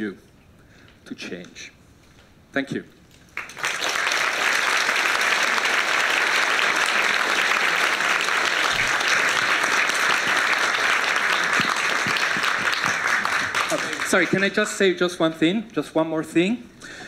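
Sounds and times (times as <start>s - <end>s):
audience applauding: 3.3s - 14.8s.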